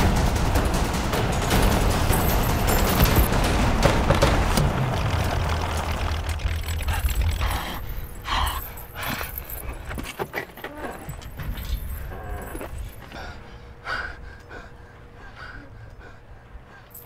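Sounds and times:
low rumble with hiss: 0.0s - 9.9s
metallic clinks and knocks: 1.5s - 3.4s, 4.9s - 13.2s.

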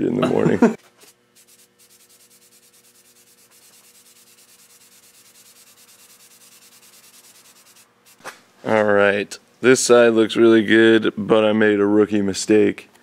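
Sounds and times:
spray paint can hissing: 1.4s - 8.2s.

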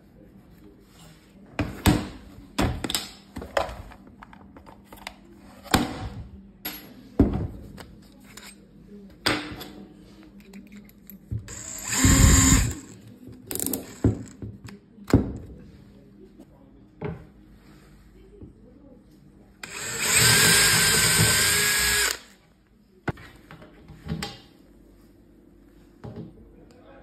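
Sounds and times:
cordless drill running: 11.5s - 13.0s, 19.6s - 22.3s.

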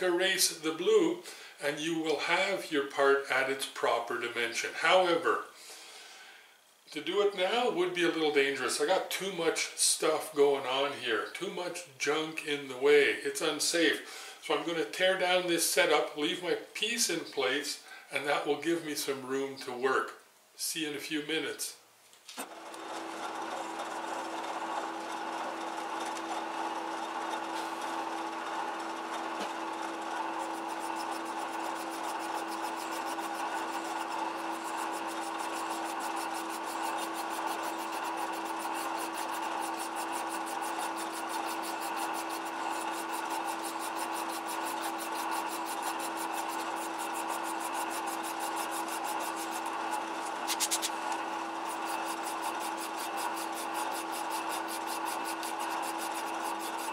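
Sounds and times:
lathe running: 22.4s - 56.9s
file rasping against metal: 29.7s - 51.0s, 51.6s - 56.9s.

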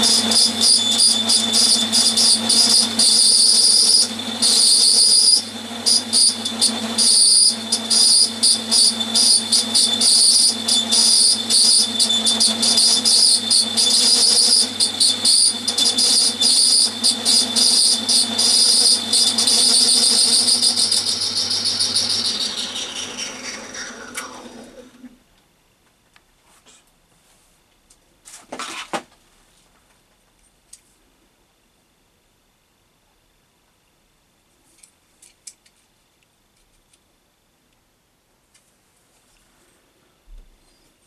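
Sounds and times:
metal lathe whining: 0.0s - 25.1s
lathe spinning down: 0.0s - 25.2s.

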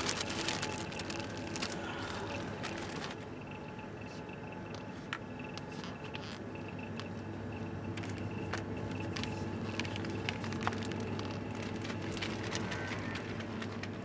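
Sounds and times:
bread wrapper crinkling: 0.0s - 3.2s, 9.1s - 14.0s
chiller cabinets humming: 0.0s - 14.0s.

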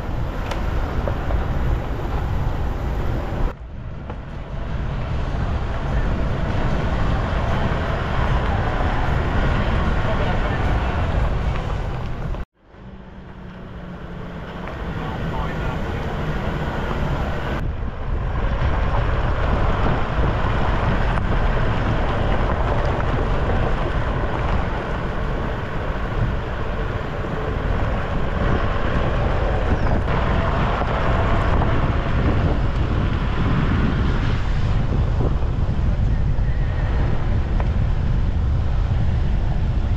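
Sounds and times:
truck rumbling on gravel: 0.0s - 39.9s
wind rushing over microphone: 0.0s - 39.9s.

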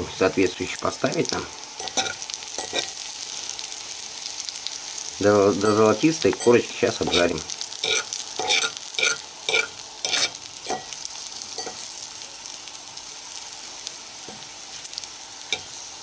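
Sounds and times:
mushrooms sizzling in butter: 0.0s - 16.0s
metal fork scraping a pan: 1.8s - 3.0s, 5.6s - 11.0s, 11.6s - 11.9s.

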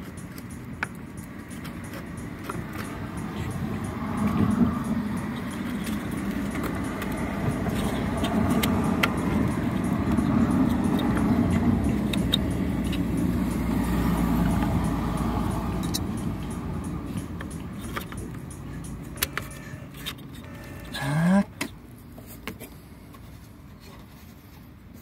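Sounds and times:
steady low rumble: 0.1s - 19.2s.

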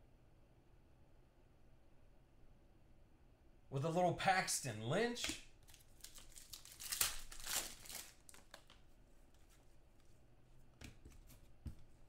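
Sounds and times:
cards rustling and sliding: 5.7s - 10.2s.

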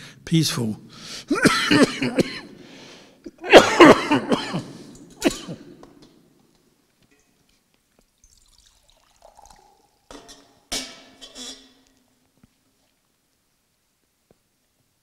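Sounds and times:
man coughing: 1.3s - 2.6s, 3.3s - 5.8s.

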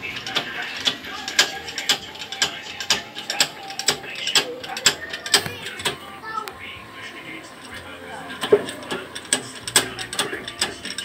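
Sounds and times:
metallic ratcheting clicks of a press: 0.0s - 6.0s, 8.4s - 11.0s.

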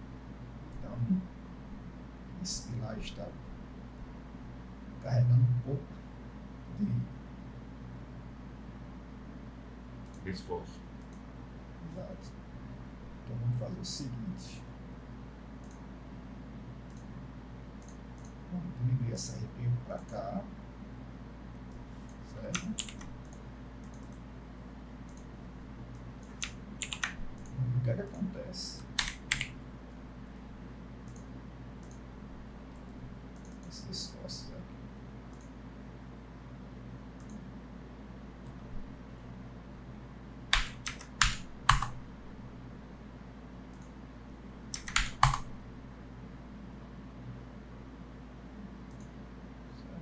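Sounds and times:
low electrical hum: 0.0s - 50.0s
computer keyboard keys tapped: 21.7s - 24.2s, 26.0s - 27.6s, 28.8s - 29.6s, 40.5s - 42.0s, 44.7s - 45.5s.

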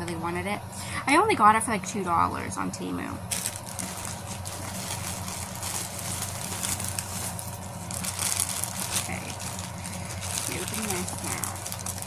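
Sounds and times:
plastic packaging crinkling: 3.3s - 12.0s.

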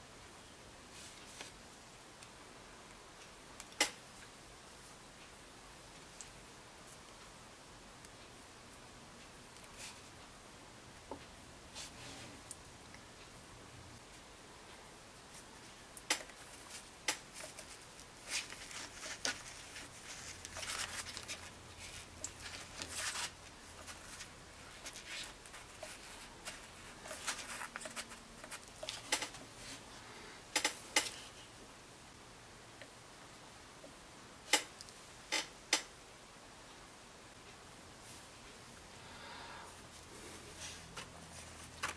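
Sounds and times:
clay rubbing scrapes: 15.3s - 29.9s.

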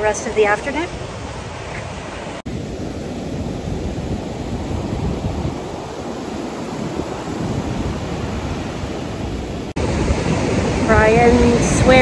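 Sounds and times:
waves breaking on a beach: 0.0s - 12.0s
wind rumbling on microphone: 0.0s - 12.0s.

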